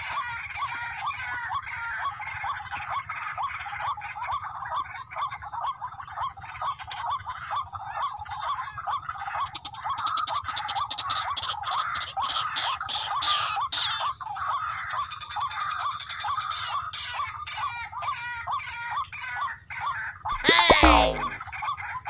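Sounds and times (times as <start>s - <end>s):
sharp clicking notes: 20.4s - 21.4s.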